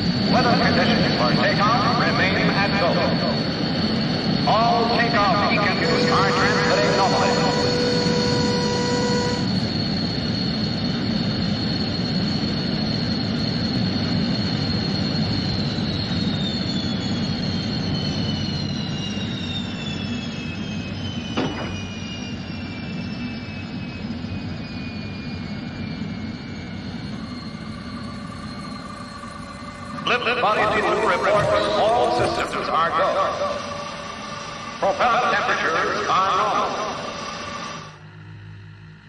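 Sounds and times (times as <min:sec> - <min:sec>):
jet engine roar: 0:00.0 - 0:39.0
turbine whine sliding down: 0:00.0 - 0:39.0.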